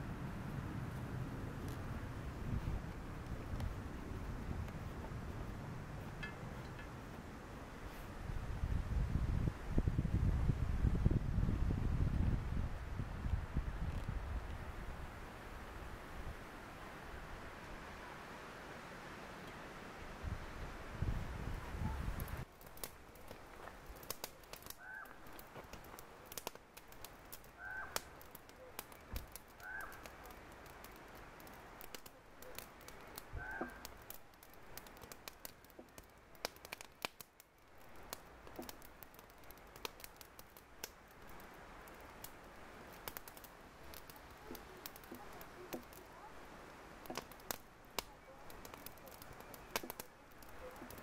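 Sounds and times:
crow cawing: 24.8 - 25.2, 27.6 - 28.0, 29.6 - 30.0, 33.4 - 33.8.

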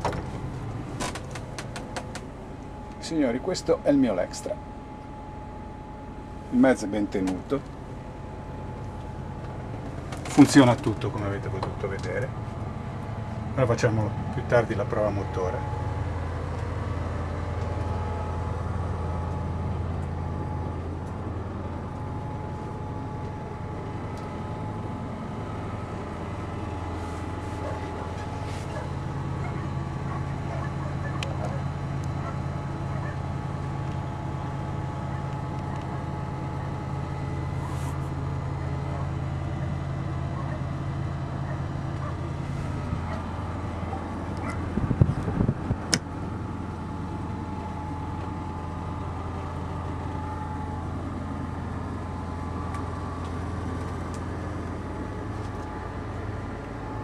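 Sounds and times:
faint steady whine: 0.0 - 57.0
higher hum: 0.0 - 57.0
low mechanical hum: 0.0 - 57.0.

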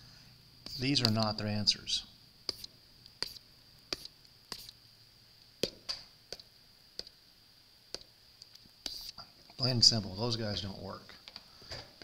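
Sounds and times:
faint high whine: 0.0 - 12.0
stylus tapping on screen: 5.6 - 7.1.

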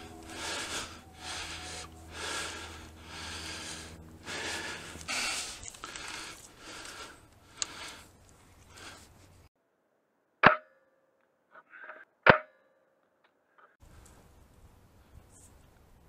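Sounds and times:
heavy breathing: 0.0 - 9.5.

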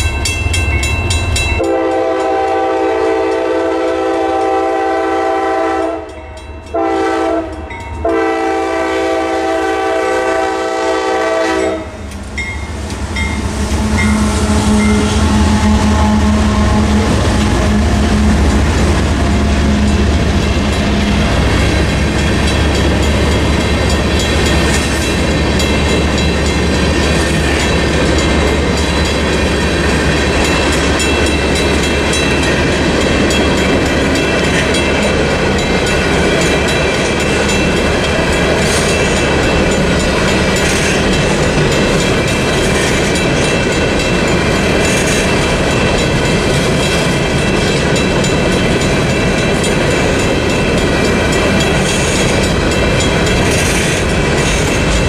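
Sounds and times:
locomotive air horn blasts: 1.6 - 12.0, 13.7 - 18.6
train wheels clicking on rail joints: 6.1 - 55.0
locomotive engine hum: 6.7 - 55.0.

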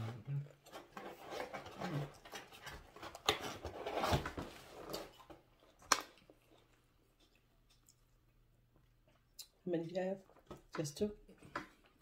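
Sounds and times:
chewing: 4.9 - 9.6.

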